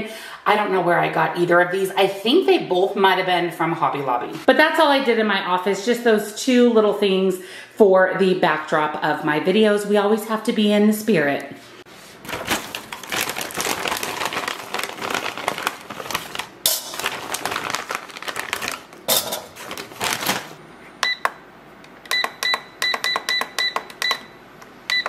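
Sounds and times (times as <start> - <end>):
plastic bag crinkling: 11.9 - 20.6
air fryer button beeps: 21.0 - 21.3, 22.1 - 25.0.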